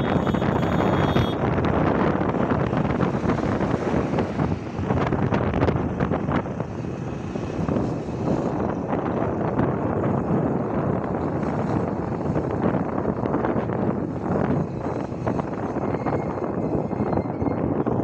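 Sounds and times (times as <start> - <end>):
road and traffic noise: 0.0 - 18.0
wind buffeting microphone: 0.0 - 18.0.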